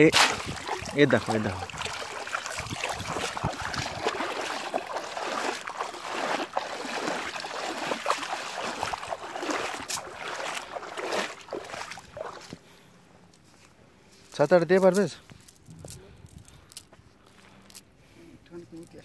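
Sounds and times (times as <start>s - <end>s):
net dragged through water: 0.0s - 12.5s
river water splashing: 0.0s - 12.6s.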